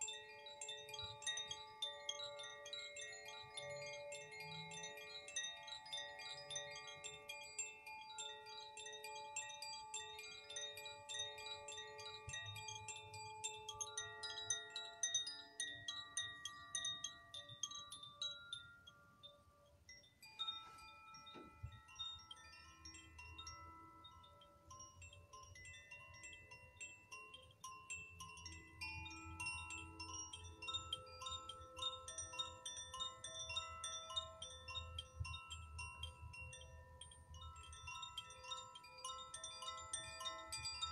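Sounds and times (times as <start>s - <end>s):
metal chimes ringing: 0.0s - 40.9s
soft knock: 21.3s - 21.6s.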